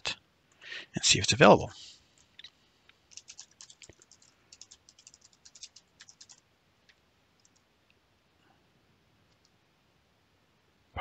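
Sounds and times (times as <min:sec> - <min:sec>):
typing on computer keyboard: 0:03.1 - 0:07.6.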